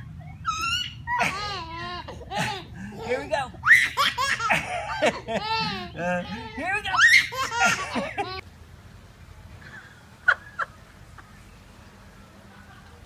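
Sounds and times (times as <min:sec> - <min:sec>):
baby laughing: 0:00.2 - 0:08.4.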